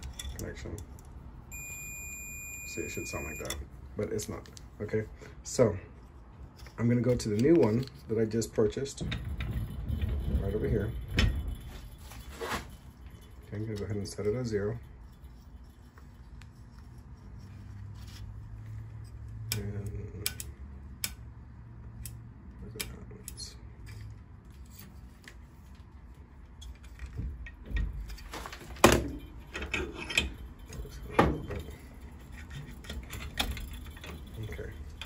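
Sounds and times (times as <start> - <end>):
test leads rattling: 6.7 - 16.1.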